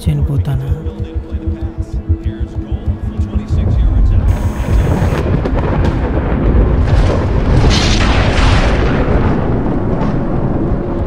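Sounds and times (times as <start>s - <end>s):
thunder rumbling: 0.8s - 11.0s
thunder crash: 3.0s - 11.0s.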